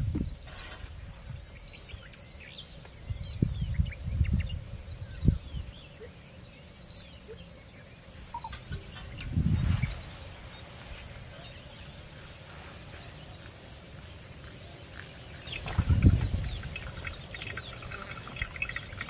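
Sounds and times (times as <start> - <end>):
insects droning: 0.0 - 19.0
low muffled bump: 15.6 - 16.5.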